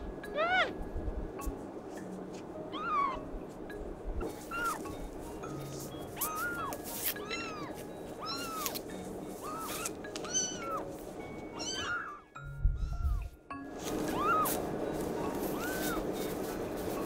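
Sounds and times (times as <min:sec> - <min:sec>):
background music: 0:00.0 - 0:17.0
kittens mewing: 0:00.3 - 0:00.8, 0:02.7 - 0:03.2, 0:04.3 - 0:04.9, 0:06.1 - 0:08.8, 0:09.4 - 0:10.9, 0:11.6 - 0:13.2, 0:14.1 - 0:14.6, 0:15.5 - 0:16.0.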